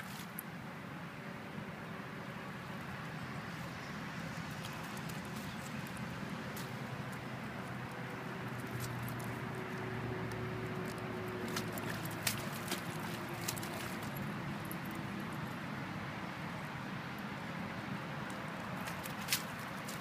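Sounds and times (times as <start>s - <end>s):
steady background noise: 0.0s - 20.0s
dog digging in mud: 8.6s - 14.4s.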